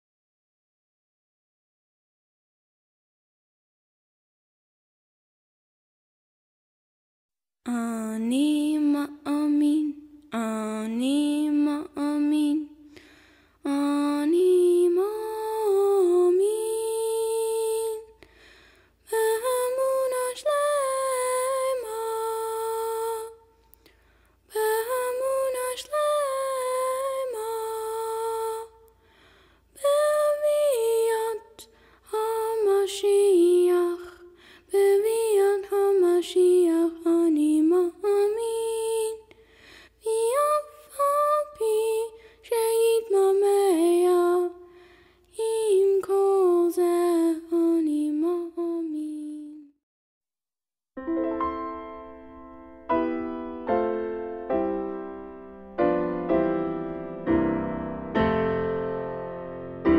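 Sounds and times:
woman singing: 0:07.6 - 0:13.0, 0:13.6 - 0:18.3, 0:19.0 - 0:23.6, 0:24.5 - 0:28.9, 0:29.8 - 0:39.4, 0:40.0 - 0:49.8.

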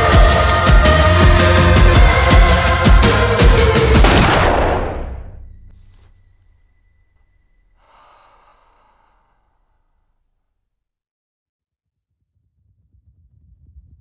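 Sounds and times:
electronic soundtrack music: 0:00.0 - 0:06.1
woman crying breath: 0:07.8 - 0:09.5.

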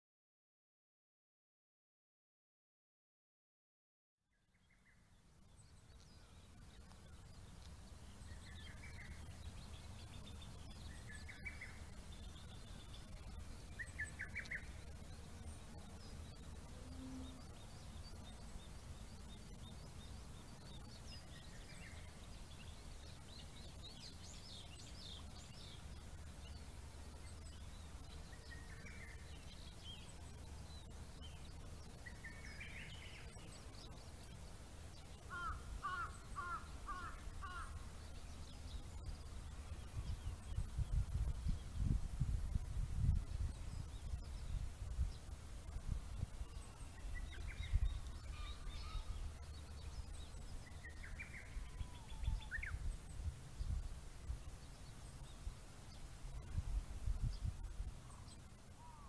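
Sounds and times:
wild birds chirping: 0:04.4 - 0:59.0.

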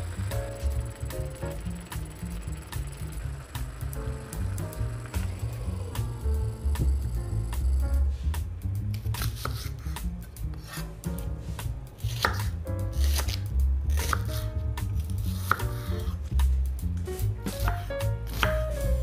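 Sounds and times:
knife chopping on wooden board: 0:12.1 - 0:15.9, 0:17.4 - 0:18.7.

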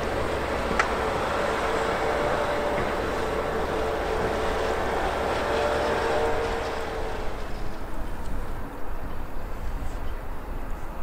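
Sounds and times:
diesel engine running: 0:00.0 - 0:07.7.

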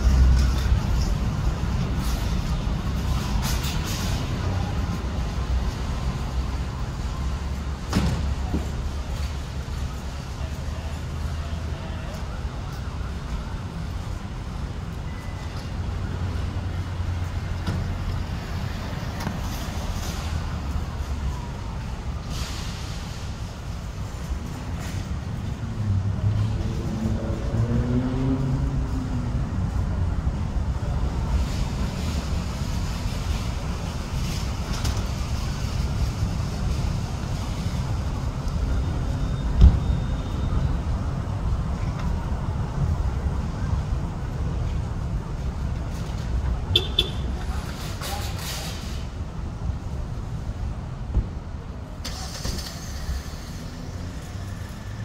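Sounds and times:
road traffic rumble: 0:00.0 - 0:55.0
thump: 0:07.9 - 0:08.7, 0:39.6 - 0:39.8, 0:51.1 - 0:51.4.

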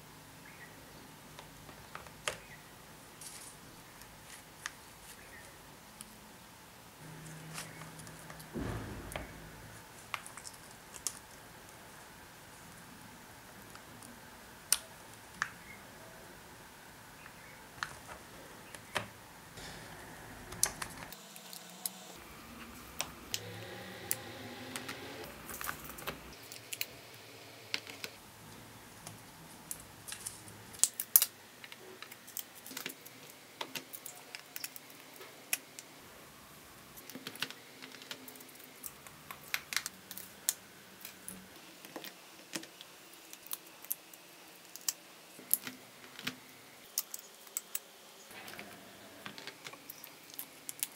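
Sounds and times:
louder knocks: 0:08.5 - 0:09.8.

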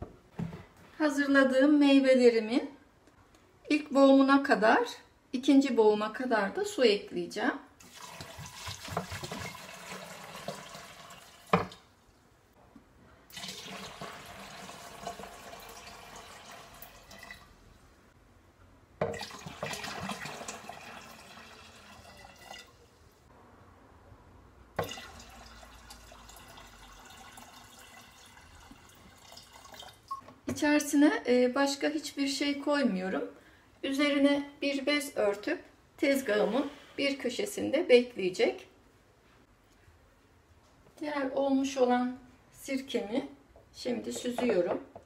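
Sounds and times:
water pouring and splashing: 0:07.8 - 0:11.9, 0:13.3 - 0:17.6, 0:19.1 - 0:23.0, 0:24.8 - 0:30.2.

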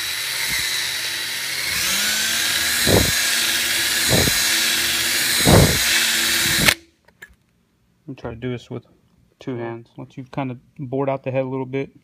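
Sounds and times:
cordless drill whining: 0:00.0 - 0:06.8
short low thuds: 0:02.8 - 0:03.2, 0:04.0 - 0:04.4, 0:05.4 - 0:05.9.

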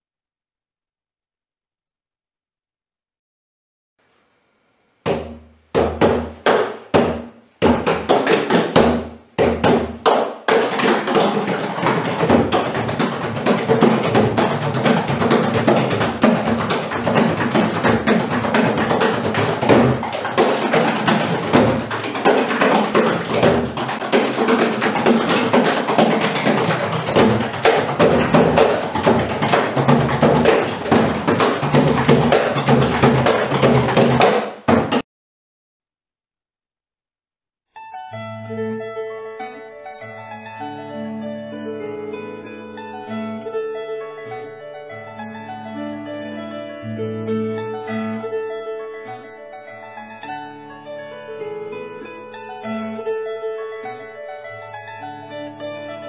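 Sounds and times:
frame drums struck with beaters: 0:05.1 - 0:35.0.

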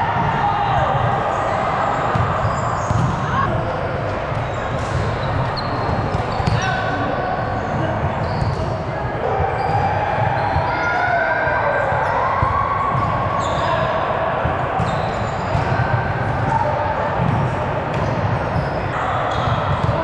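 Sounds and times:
players' voices: 0:00.0 - 0:20.0
volleyballs thudding: 0:02.1 - 0:06.7.

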